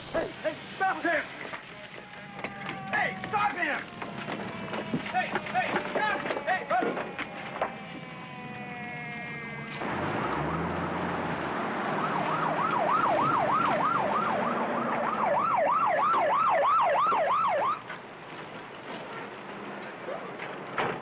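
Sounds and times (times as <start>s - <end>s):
siren yelping: 1.6s - 17.8s.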